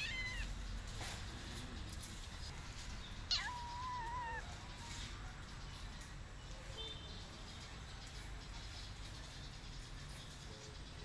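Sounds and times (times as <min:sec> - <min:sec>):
cat meowing: 0:00.0 - 0:00.6, 0:03.3 - 0:04.6.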